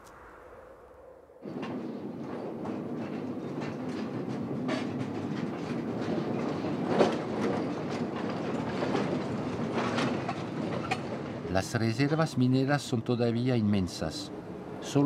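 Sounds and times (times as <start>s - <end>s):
rumble of rolling wheels: 1.4s - 12.2s.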